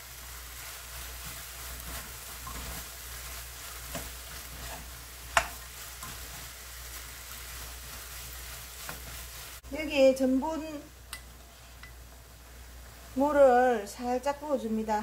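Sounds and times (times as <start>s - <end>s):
food sizzling in a frying pan: 0.0s - 15.0s
spatula scraping pan: 0.5s - 9.6s
spatula clacking against pan: 3.9s - 6.4s.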